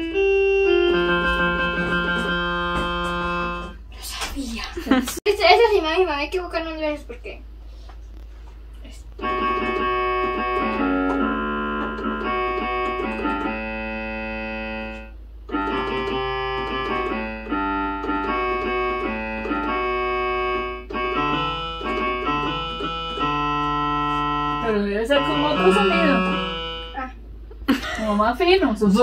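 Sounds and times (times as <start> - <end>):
electronic keyboard playing chords: 0.0 - 3.9, 9.2 - 27.2.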